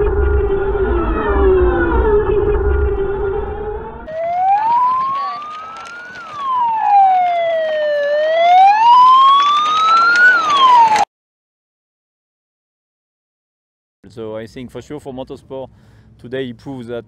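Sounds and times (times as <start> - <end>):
low rumble: 0.0 - 6.6.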